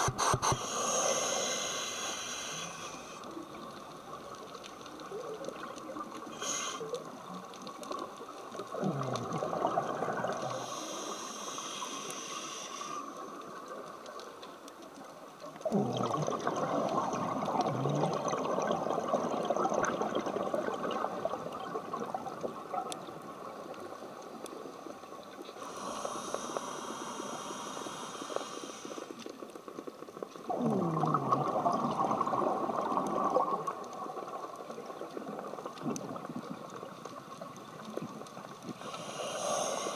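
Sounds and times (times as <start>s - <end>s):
regulator inhale hiss: 0.0s - 3.3s, 6.3s - 7.1s, 10.4s - 13.4s, 25.6s - 29.3s, 38.8s - 39.9s
exhaled bubbles rushing: 8.7s - 10.7s, 15.6s - 23.0s, 30.4s - 36.8s.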